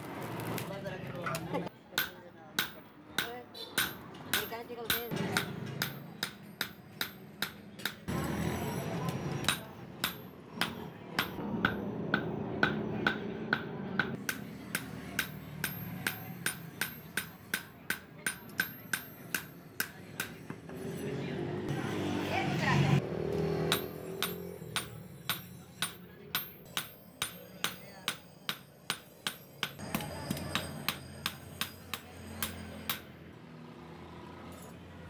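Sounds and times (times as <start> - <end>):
hammer ringing on anvil: 2.0 - 8.0, 9.4 - 20.4, 23.7 - 33.1.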